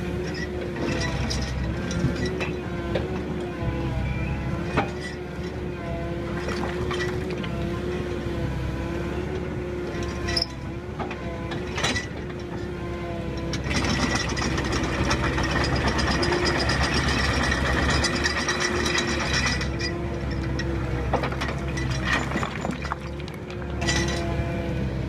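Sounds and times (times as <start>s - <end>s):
excavator engine hum: 0.0s - 25.0s
soil and stones rattling on steel: 13.4s - 24.4s.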